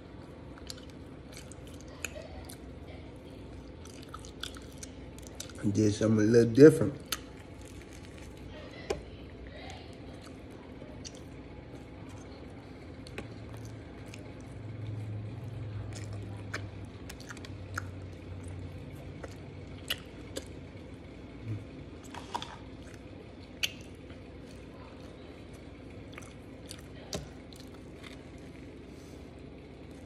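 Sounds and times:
wet squishy chewing: 0:00.1 - 0:05.8, 0:06.9 - 0:30.0
low hum: 0:06.9 - 0:30.0
mouth smacks and clicks: 0:23.4 - 0:24.0.

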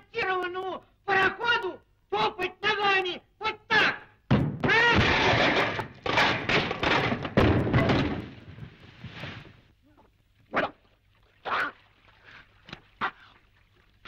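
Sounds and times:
knocks: 0:04.3 - 0:08.4
short splashes: 0:07.8 - 0:09.7, 0:10.8 - 0:14.0.

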